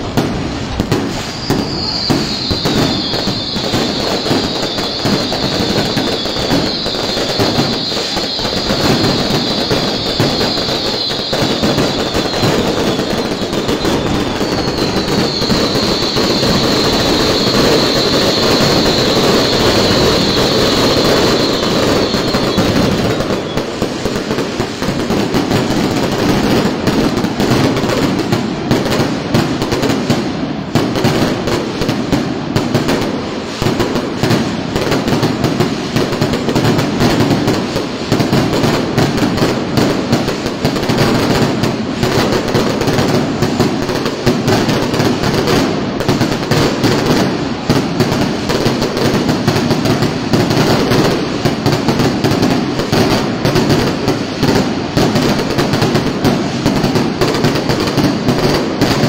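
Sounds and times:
fireworks bursting: 0.0s - 59.0s
fireworks crackling: 0.0s - 59.0s.

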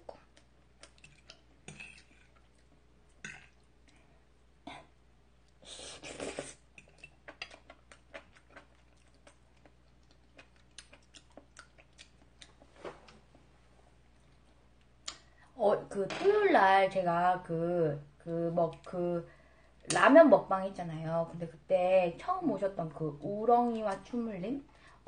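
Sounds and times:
person chewing food: 0.0s - 4.2s, 6.3s - 13.3s.

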